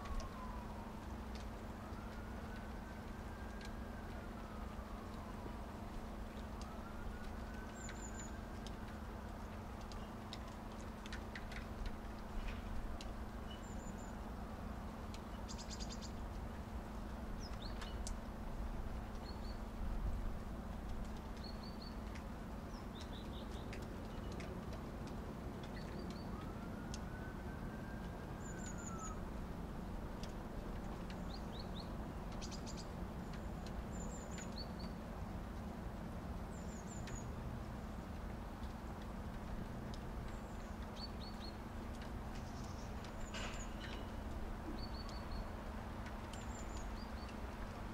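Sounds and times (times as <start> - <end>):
light ticks: 0.0 - 47.9
steady hiss and low hum: 0.0 - 47.9
small birds chirping: 21.2 - 24.5, 31.0 - 35.0, 40.2 - 45.6, 46.2 - 47.7.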